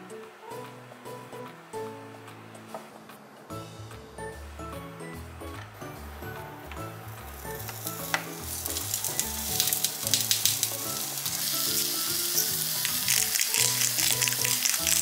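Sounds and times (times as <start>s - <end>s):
slices sizzling in oil: 7.2s - 15.0s.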